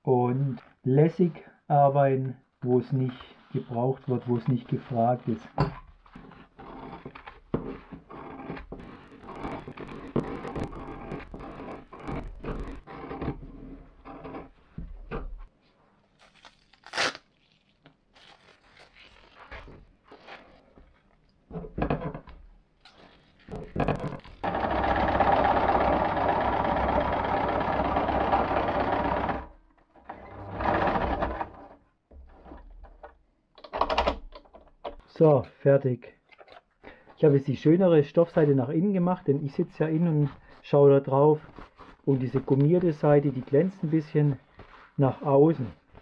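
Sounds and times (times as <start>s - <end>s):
sewing machine stitching: 8.2s - 13.4s, 23.8s - 31.8s.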